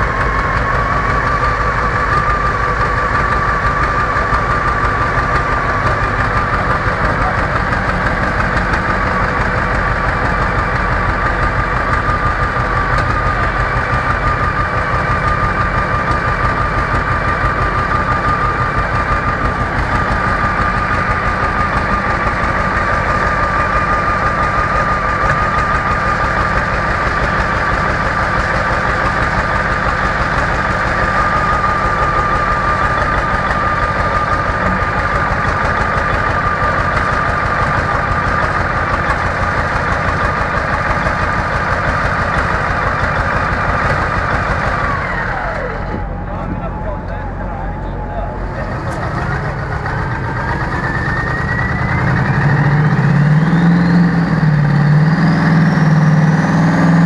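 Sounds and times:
large engine idling: 0:00.0 - 0:57.0.

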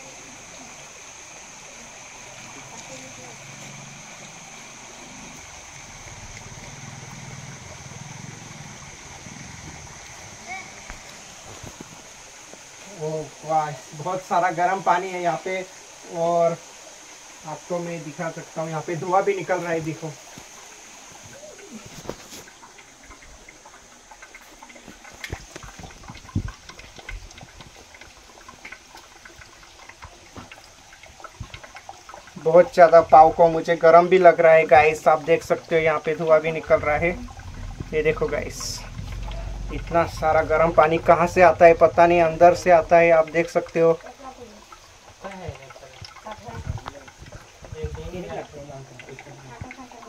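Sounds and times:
water running and lapping: 0:00.0 - 0:50.0
low rumble: 0:36.5 - 0:43.7.

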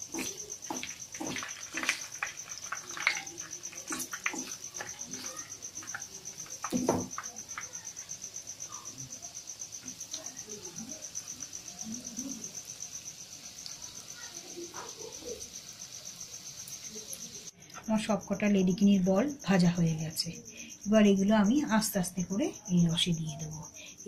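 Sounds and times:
wooden spatula knocking pan: 0:00.0 - 0:07.7
food bubbling in hot oil: 0:00.0 - 0:17.6
cricket chirping: 0:00.0 - 0:24.0.

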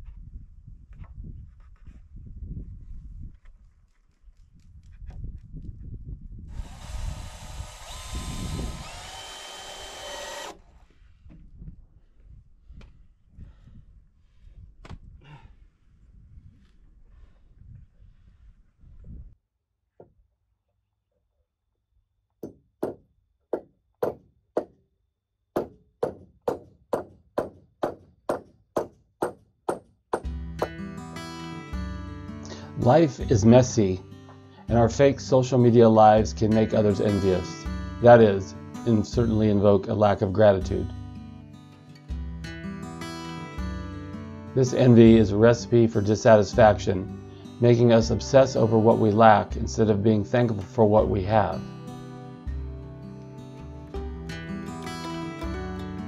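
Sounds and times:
cordless drill whining: 0:06.5 - 0:10.9
hammer nailing wooden boards: 0:22.4 - 0:24.7, 0:25.6 - 0:30.3
acoustic guitar music: 0:30.2 - 0:56.0.

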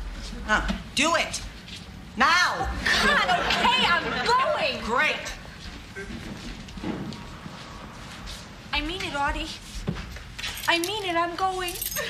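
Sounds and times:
low room noise: 0:00.0 - 0:12.0
footsteps on a floor: 0:05.4 - 0:10.7.

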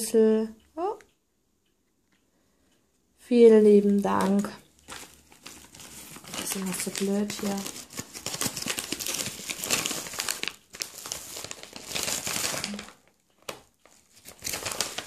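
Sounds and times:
parcel packaging crinkling: 0:03.8 - 0:15.0.

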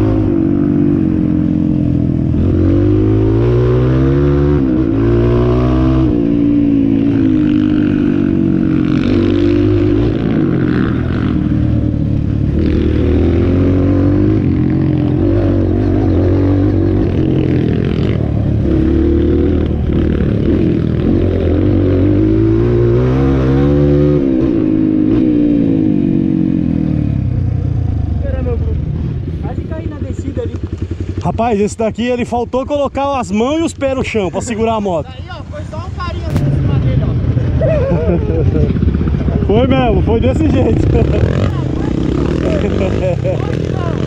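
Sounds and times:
motorcycle engine accelerating: 0:00.0 - 0:31.9, 0:36.2 - 0:44.0.

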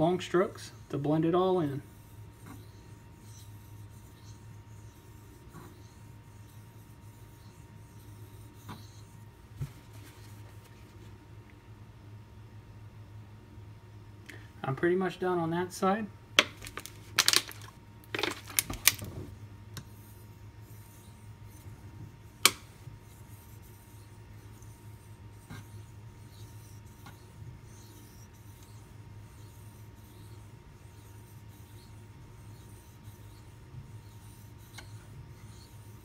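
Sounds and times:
steady low hum: 0:00.0 - 0:36.0
knife blade scraping on whetstone: 0:23.1 - 0:36.0.

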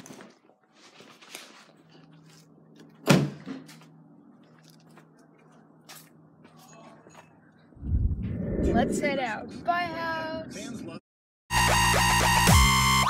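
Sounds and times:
steady low hum: 0:07.7 - 0:10.1.

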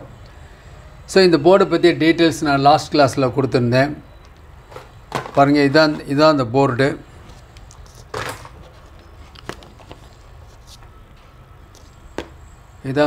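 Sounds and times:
circuit board rustle: 0:07.2 - 0:11.0.

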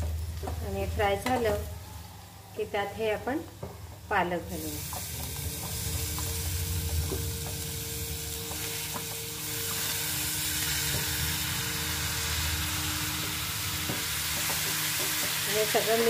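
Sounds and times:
leaves sizzling in hot oil: 0:04.0 - 0:16.0.

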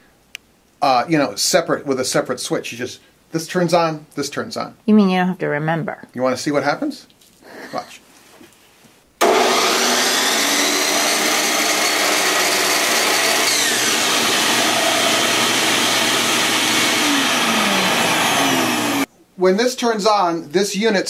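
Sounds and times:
miter saw motor running: 0:09.2 - 0:19.1
shop vac running: 0:09.2 - 0:19.1.

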